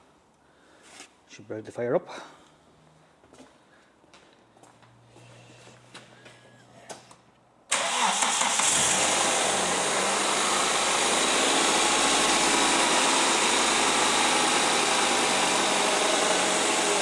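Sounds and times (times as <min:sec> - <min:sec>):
car engine starting and idling: 0:07.7 - 0:17.0.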